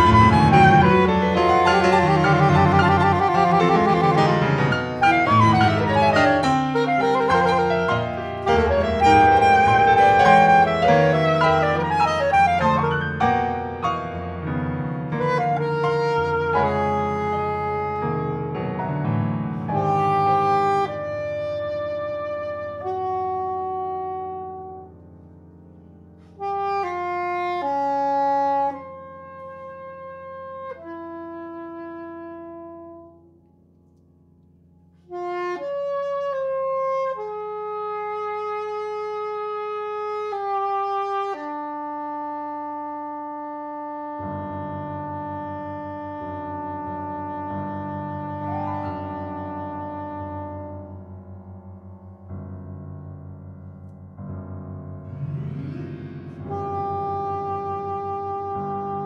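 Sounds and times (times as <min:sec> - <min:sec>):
soprano saxophone notes: 0:00.0 - 0:13.9, 0:15.1 - 0:18.9, 0:19.5 - 0:25.1, 0:26.2 - 0:33.4, 0:35.0 - 0:51.1, 0:55.4 - 0:59.0
piano chords: 0:00.0 - 0:59.0.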